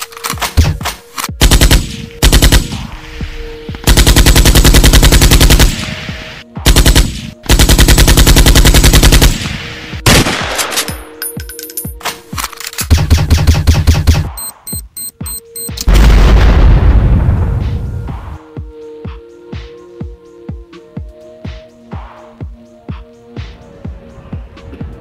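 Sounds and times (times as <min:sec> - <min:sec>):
automatic gunfire: 0:01.4 - 0:02.8, 0:03.9 - 0:05.8, 0:06.7 - 0:09.5, 0:10.1 - 0:11.0.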